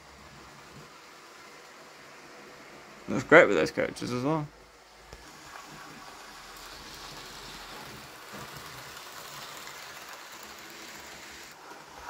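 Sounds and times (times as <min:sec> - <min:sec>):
model train rolling on track: 0:05.2 - 0:12.0.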